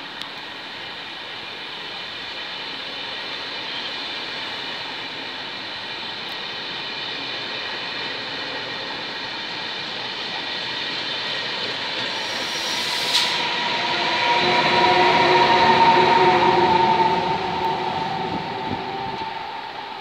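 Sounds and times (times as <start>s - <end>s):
train coaches rumbling on rails: 0.0s - 20.0s
short hiss: 12.1s - 13.5s.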